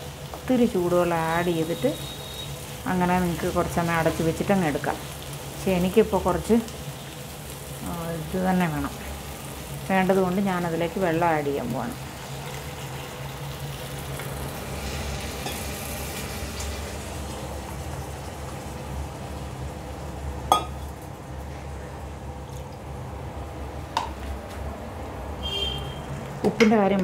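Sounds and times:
curry sizzling in pan: 0:00.0 - 0:21.4.

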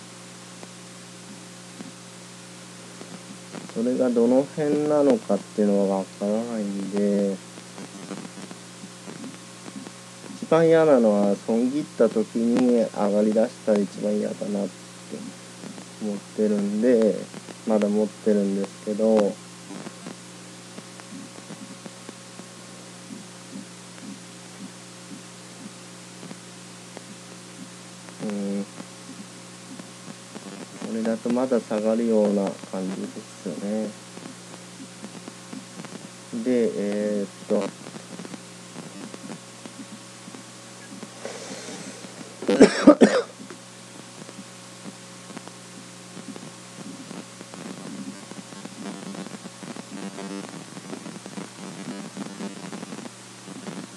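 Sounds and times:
electrical hum with hiss: 0:00.0 - 0:53.9
man coughing: 0:42.4 - 0:43.4.

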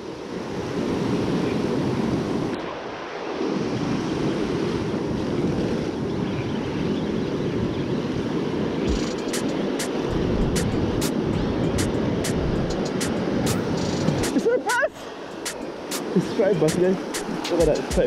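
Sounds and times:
wind buffeting microphone: 0:00.0 - 0:18.0
surf breaking on beach: 0:07.5 - 0:18.0
sharp clicks: 0:08.9 - 0:10.0.

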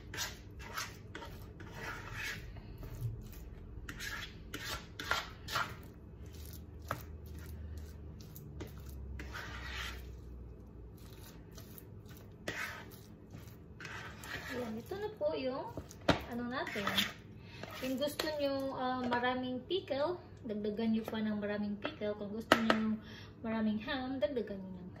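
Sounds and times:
fork stirring dip in a bowl: 0:00.0 - 0:19.3.

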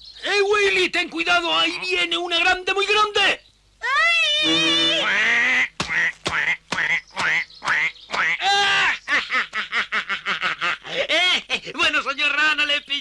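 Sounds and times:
cartoon frightened cry: 0:03.8 - 0:05.6, 0:08.4 - 0:09.0
cartoon short falling yelps: 0:03.8 - 0:05.6
cartoon cackling laughter: 0:04.4 - 0:05.6, 0:08.3 - 0:11.7.

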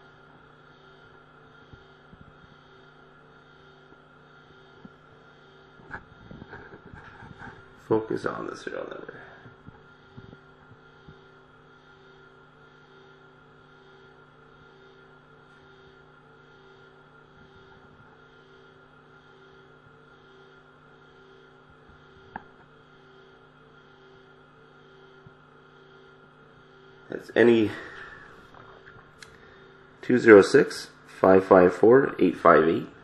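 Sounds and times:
faint electrical hum: 0:00.0 - 0:33.0.

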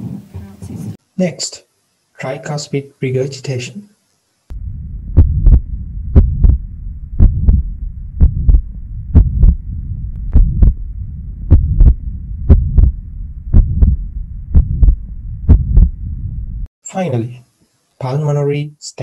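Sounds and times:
heartbeat lub-dub: 0:04.5 - 0:16.7
low rumbling heart murmur: 0:04.5 - 0:16.7.

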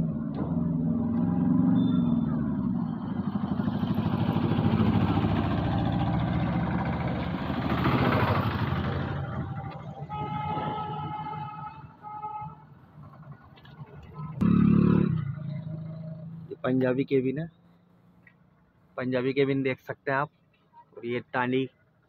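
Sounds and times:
vehicle engine passing: 0:00.0 - 0:11.9, 0:12.8 - 0:16.7.

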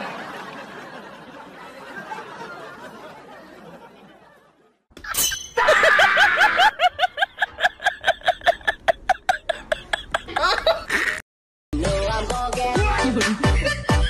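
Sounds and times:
high-pitched laughter: 0:05.1 - 0:11.2.

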